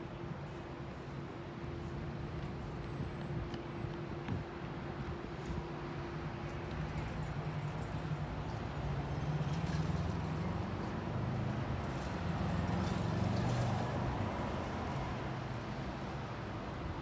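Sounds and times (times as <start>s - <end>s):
bus engine hum: 0.0s - 17.0s
city street traffic: 0.0s - 17.0s.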